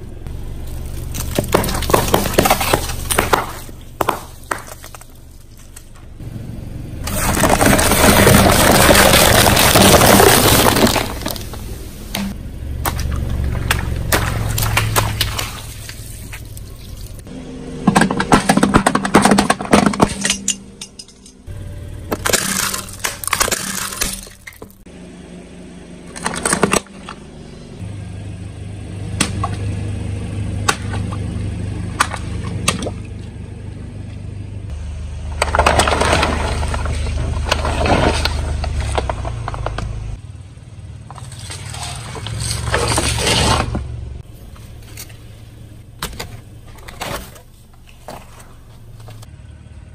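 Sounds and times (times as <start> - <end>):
car engine running low: 0.0 - 49.9
cans crunching under tyre: 0.6 - 6.1, 7.0 - 17.3, 22.1 - 24.8, 41.1 - 49.3
water balloons bursting: 7.0 - 17.3.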